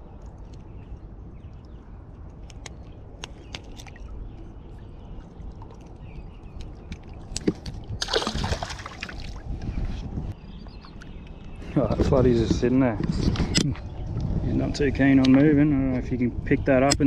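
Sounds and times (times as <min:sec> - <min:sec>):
splash in river water: 0:08.0 - 0:09.4.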